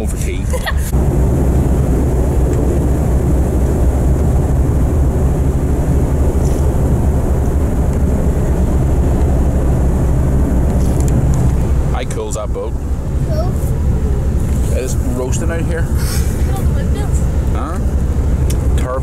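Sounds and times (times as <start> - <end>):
ship engines running: 0.0 - 19.0
wind on microphone: 0.9 - 12.0.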